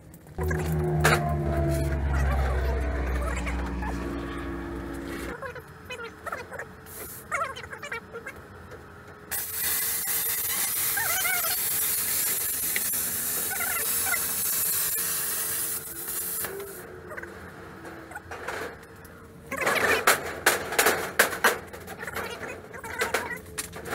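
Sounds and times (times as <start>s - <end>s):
plasma cutter hissing: 9.3s - 16.8s.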